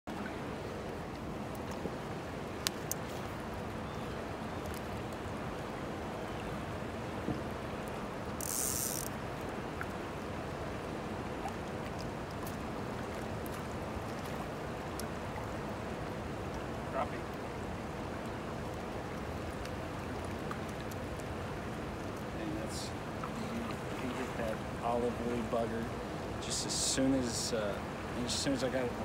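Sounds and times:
water rushing over rocks: 0.1 - 29.0
fly reel ratcheting buzz: 8.4 - 9.1
small clicks: 8.4 - 9.2.

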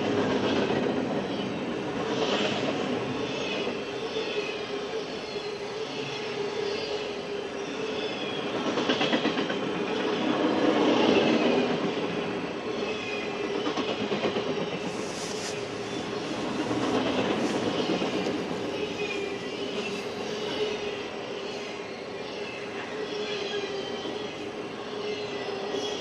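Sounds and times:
freight train wheels rattling on rail: 0.0 - 3.8, 8.1 - 21.6.

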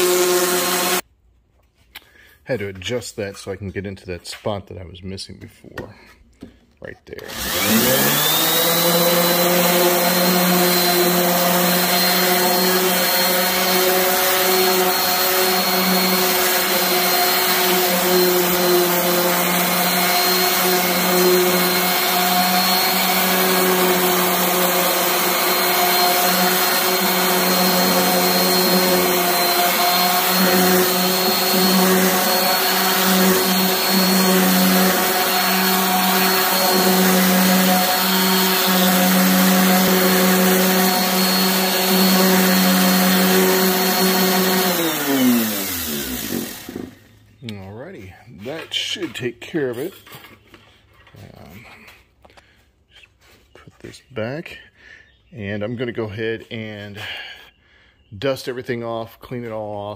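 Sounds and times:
orbital sander on metal: 0.0 - 1.0, 7.3 - 47.0.

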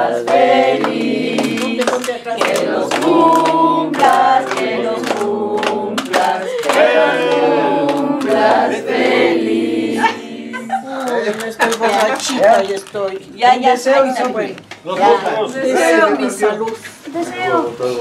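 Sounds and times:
group of people singing: 0.0 - 11.3.

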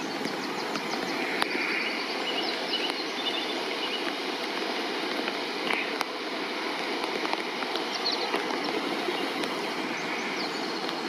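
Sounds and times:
small bird chirping: 0.0 - 4.2
flood water rushing around stones: 0.0 - 11.0.

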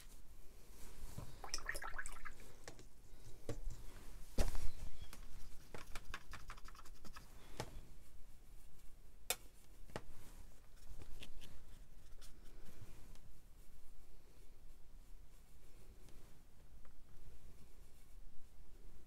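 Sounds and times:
paintbrush tapping and scrubbing: 4.4 - 7.8.

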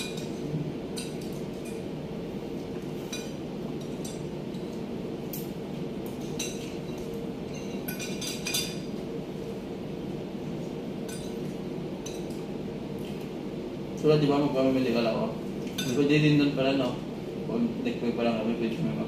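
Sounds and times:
steady low hum: 0.0 - 19.0
cutlery clinking on plates: 6.3 - 8.8, 15.7 - 16.0.

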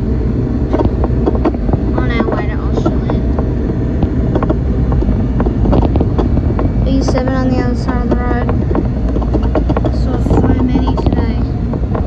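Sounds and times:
bus engine and road rumble: 0.0 - 12.0
person speaking: 1.9 - 3.3, 6.8 - 11.6.

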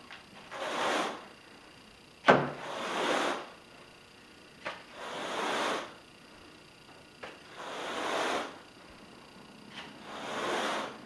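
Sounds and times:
carpet rake swishing: 0.4 - 1.2, 2.6 - 3.5, 4.9 - 6.0, 7.5 - 8.6, 9.7 - 11.0.

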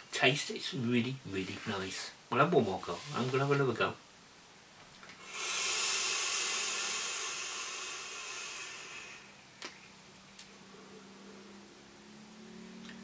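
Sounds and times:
vape air hiss: 5.2 - 9.5.

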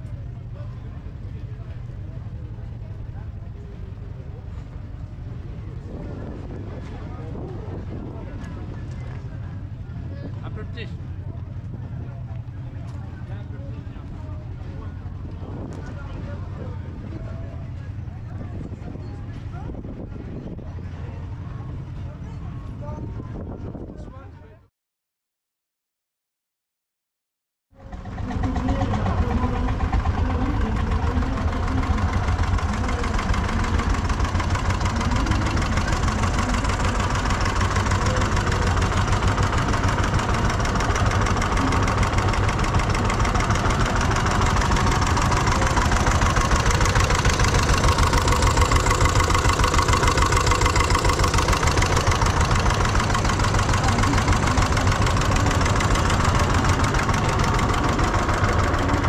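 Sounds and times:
stationary engine running: 27.8 - 59.0.

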